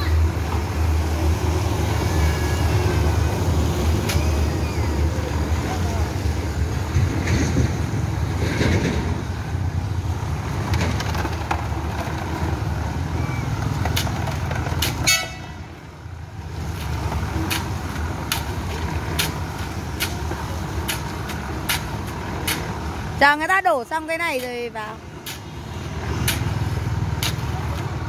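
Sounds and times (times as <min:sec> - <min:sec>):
concrete mixer rumbling: 0:00.0 - 0:28.0
passing road traffic: 0:00.0 - 0:28.0
short horn toot: 0:15.0 - 0:15.6.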